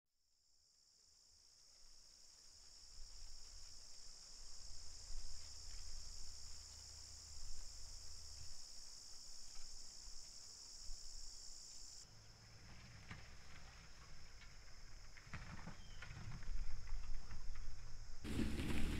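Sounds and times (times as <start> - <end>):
insects trilling: 0.6 - 18.9.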